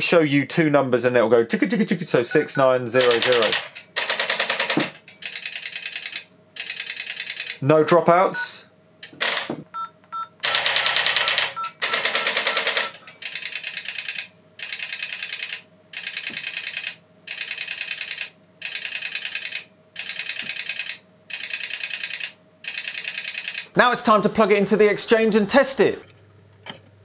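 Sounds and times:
rapid pulse dial ticks: 0:03.0 - 0:07.6, 0:10.6 - 0:23.7
keypad tones: 0:09.2 - 0:14.8.

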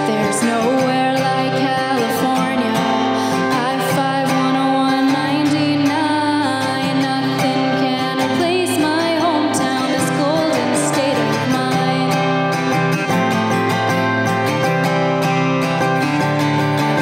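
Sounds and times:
woman singing: 0:00.0 - 0:12.8
acoustic guitar strumming: 0:00.0 - 0:17.0.

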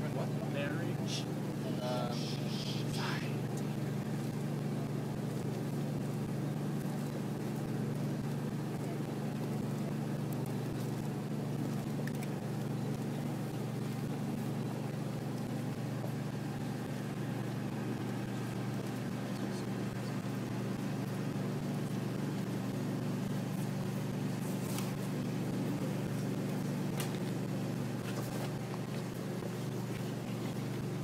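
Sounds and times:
engine humming: 0:00.0 - 0:31.0
faint clicks: 0:11.8 - 0:13.1.

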